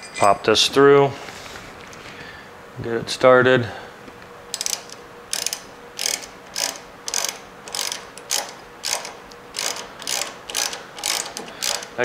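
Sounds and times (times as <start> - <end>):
ratchet wrench clicking: 4.5 - 12.0.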